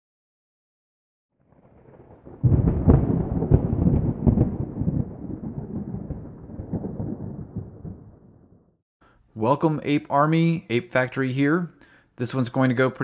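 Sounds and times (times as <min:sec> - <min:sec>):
deep rumbling with crackles: 0:01.4 - 0:08.8.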